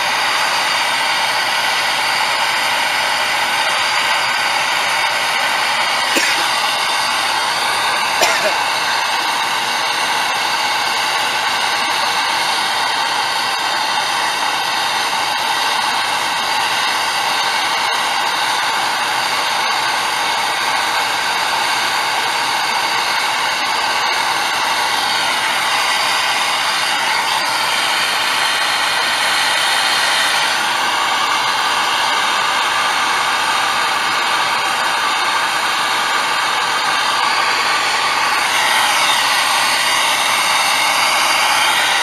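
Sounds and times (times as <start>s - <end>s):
gas torch flame hissing: 5.2s - 10.9s.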